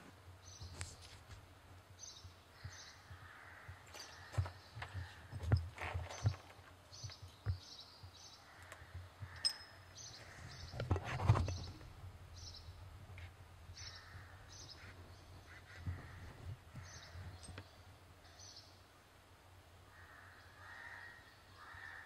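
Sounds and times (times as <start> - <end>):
birds chirping: 2.0 - 18.9.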